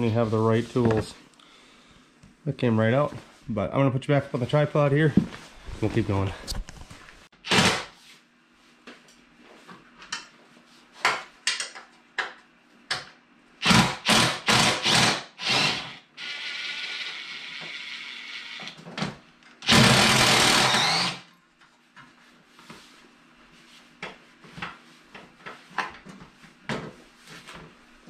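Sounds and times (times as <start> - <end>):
cordless drill running: 13.6 - 18.8, 19.6 - 21.3.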